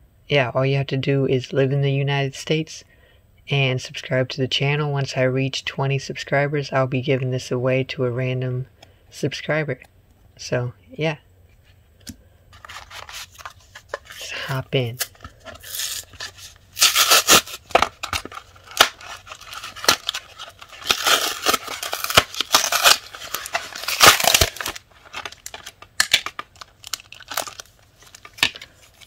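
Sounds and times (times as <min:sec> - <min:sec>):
cardboard and plastic ripping: 0:12.6 - 0:14.3, 0:15.0 - 0:29.0.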